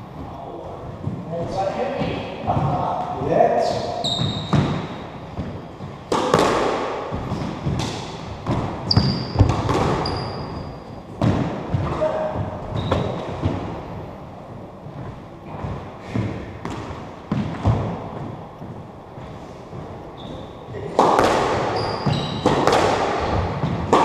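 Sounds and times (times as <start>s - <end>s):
shoe squeaks on wooden floor: 4.0s - 5.1s, 8.8s - 11.0s, 12.6s - 13.4s, 20.1s - 20.7s, 21.6s - 22.6s
squash ball hits: 4.1s - 13.8s, 15.5s - 18.4s, 19.7s - 24.0s.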